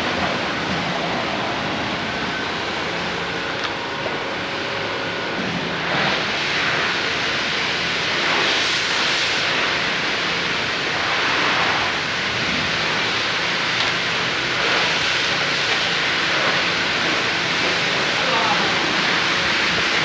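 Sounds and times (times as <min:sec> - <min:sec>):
pressure washer spraying water: 0:00.0 - 0:20.0.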